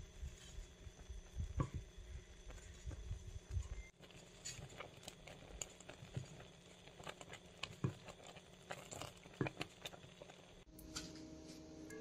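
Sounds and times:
spatula stirring in metal pot: 0:00.1 - 0:11.2
spatula tapping and scraping pot: 0:04.0 - 0:11.2.

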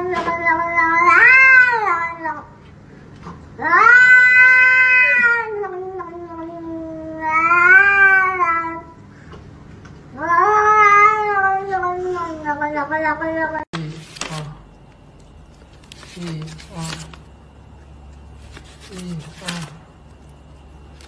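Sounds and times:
cat yowling: 0:00.0 - 0:02.5, 0:03.6 - 0:08.9, 0:10.2 - 0:13.6.

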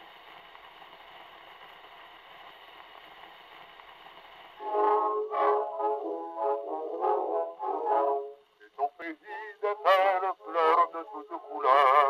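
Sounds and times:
record surface hiss: 0:00.0 - 0:12.0
orchestral introduction: 0:04.6 - 0:08.6.

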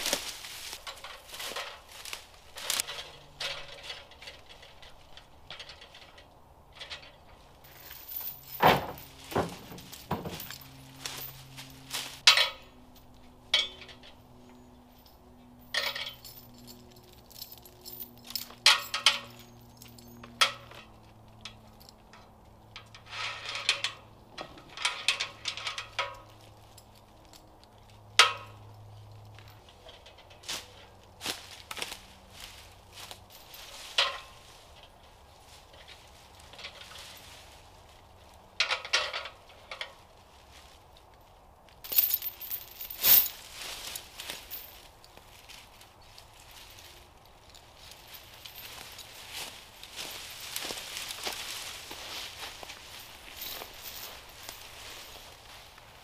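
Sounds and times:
steel chain clinking and rattling: 0:00.0 - 0:56.0
metallic knocks: 0:08.4 - 0:10.8.

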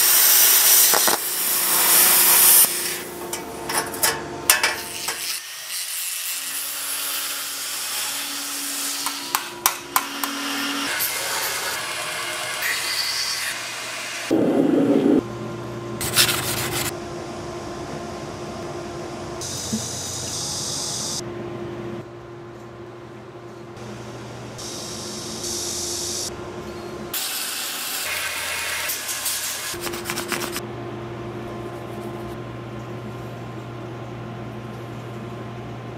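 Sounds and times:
machine hum: 0:14.0 - 0:25.4
rubbing and scraping: 0:16.0 - 0:16.9.

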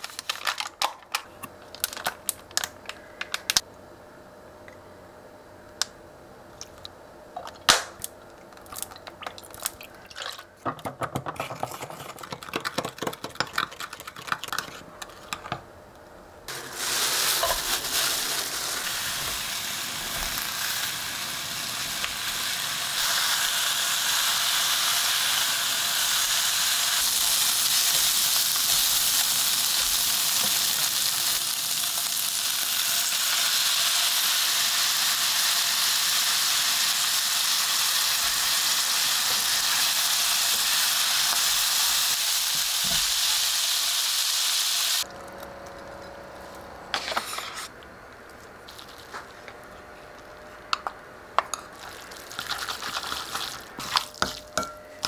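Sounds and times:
pork sizzling in a frying pan: 0:16.5 - 0:45.1.

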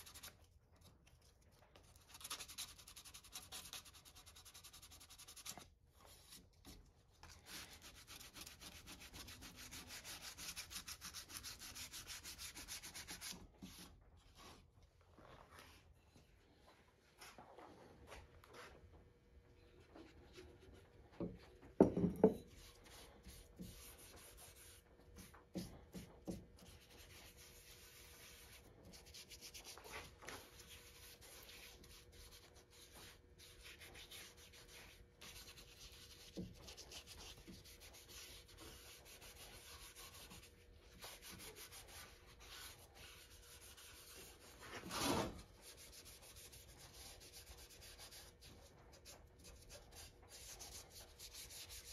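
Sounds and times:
knocks on workbench: 0:21.8 - 0:22.4
scrape on workbench: 0:44.6 - 0:45.5.

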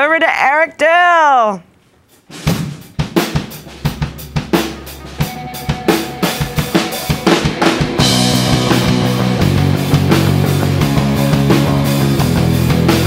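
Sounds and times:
rock drum kit playing: 0:02.3 - 0:13.0
bass guitar notes: 0:03.5 - 0:13.0.

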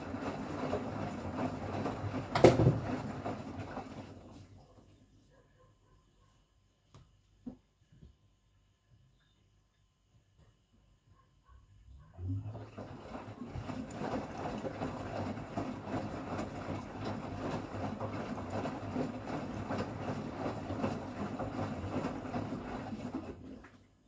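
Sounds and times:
washing machine drum turning: 0:00.0 - 0:03.9, 0:12.4 - 0:23.6
water sloshing and splashing: 0:00.0 - 0:04.6, 0:12.2 - 0:24.0.

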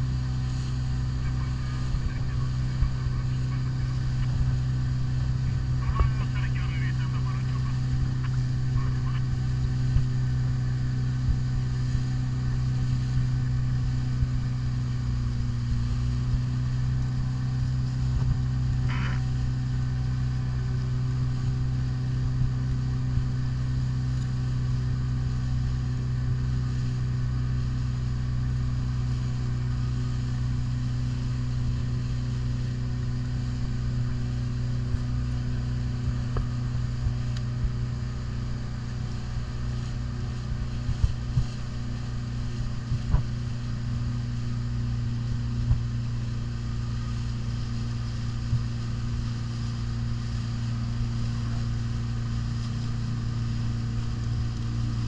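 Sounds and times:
outboard motor running: 0:00.0 - 0:55.0.

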